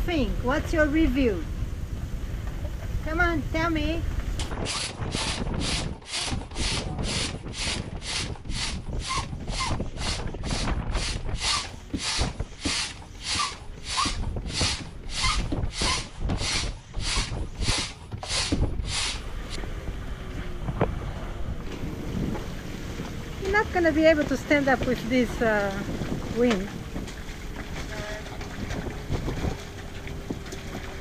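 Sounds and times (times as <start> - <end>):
hand pump air strokes: 4.6 - 19.2
pump squeaks: 4.6 - 19.2, 23.5 - 31.0.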